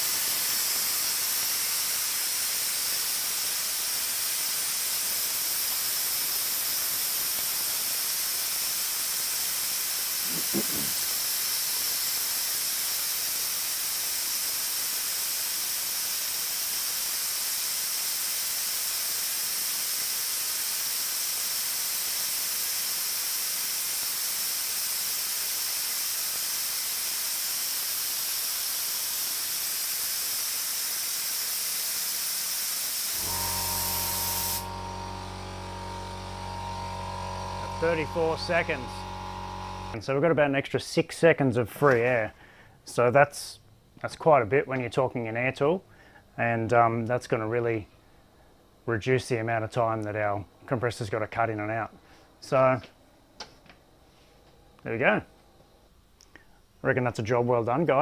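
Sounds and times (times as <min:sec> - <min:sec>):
compressed air hissing: 0:00.0 - 0:40.0.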